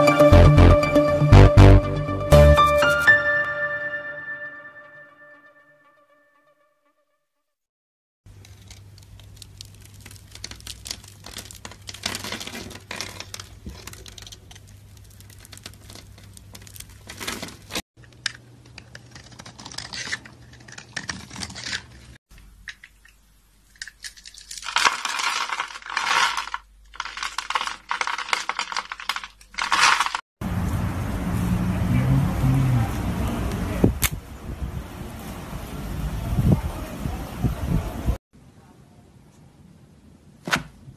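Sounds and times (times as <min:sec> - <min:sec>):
soap cubes breaking apart: 0:08.3 - 0:22.1, 0:22.7 - 0:30.2
knife crackling through soap: 0:08.3 - 0:22.2.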